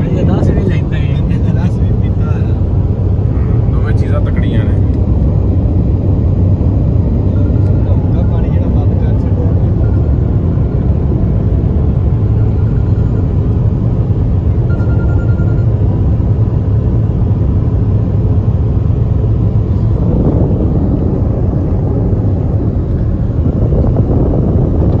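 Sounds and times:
car road and engine rumble: 0.0s - 25.0s
wind noise: 0.0s - 25.0s.

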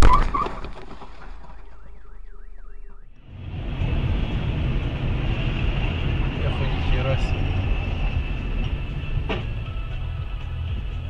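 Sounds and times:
car alarm wailing: 1.4s - 3.3s
car driving through heavy rain: 3.2s - 10.7s.

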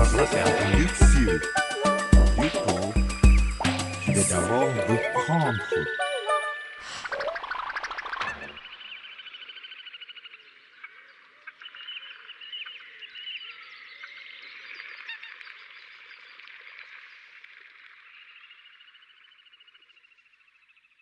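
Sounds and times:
short chirping calls: 0.0s - 10.2s.

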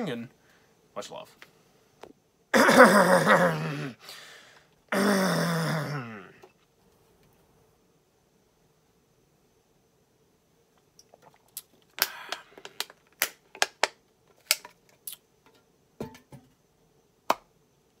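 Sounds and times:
aluminium can being crushed: 11.6s - 15.2s.

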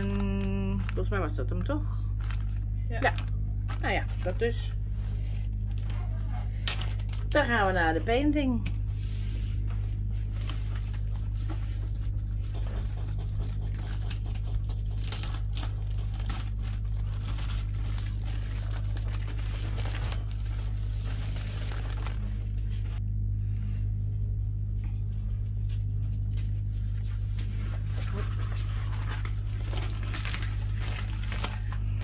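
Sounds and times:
steady low hum: 0.0s - 32.0s
plastic wrapper crinkling and tearing: 2.1s - 4.5s, 5.5s - 7.4s, 10.4s - 23.0s, 27.7s - 32.0s.

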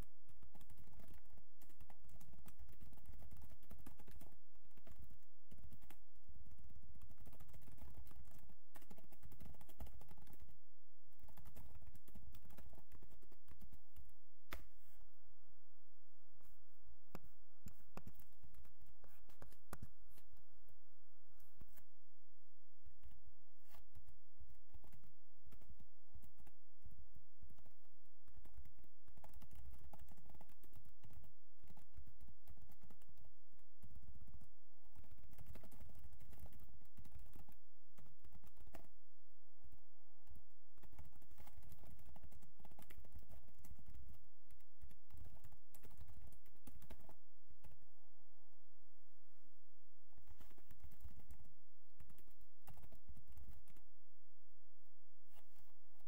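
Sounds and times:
computer keyboard typing: 0.3s - 14.2s, 23.0s - 26.6s, 27.4s - 38.9s, 40.2s - 47.8s, 50.2s - 53.9s.

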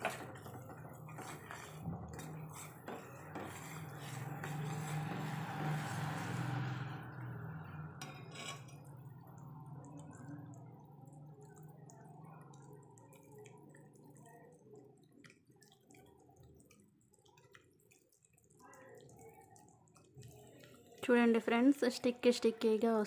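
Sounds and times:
spoon stirring and clinking in pan: 0.0s - 10.7s
syrup bubbling: 0.0s - 23.0s.

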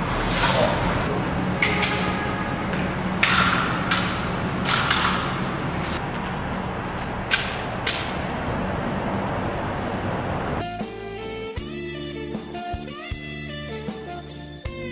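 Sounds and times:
steady low hum: 0.0s - 11.7s
sharp echoing clicks and knocks: 1.6s - 6.0s, 7.3s - 8.3s.

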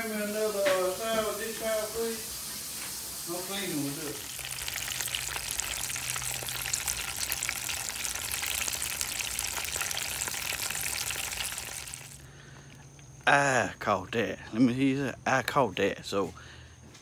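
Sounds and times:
fish deep-frying sizzle: 0.0s - 12.3s.

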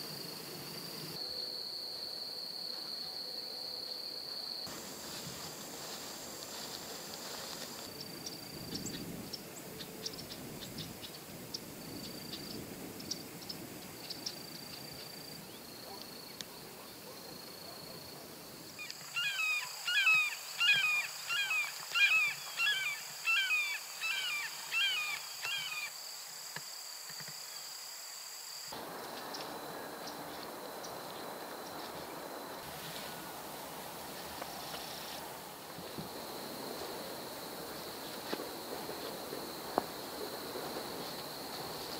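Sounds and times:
bird calling: 18.8s - 25.9s.

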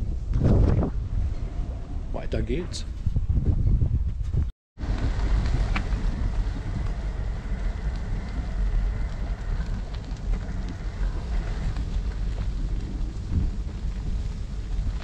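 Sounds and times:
wind buffeting microphone: 0.0s - 15.0s
tyres crackling over leaves: 4.8s - 15.0s.

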